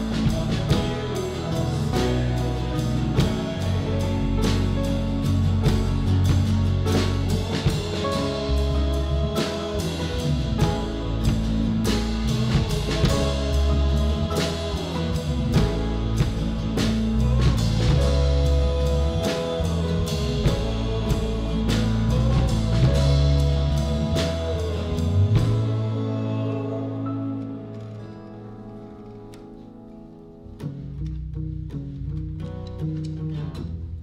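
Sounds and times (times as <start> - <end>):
steady drum beat: 0.0 - 26.3
worship band playing: 0.0 - 31.2
sustained bass notes: 0.0 - 34.0.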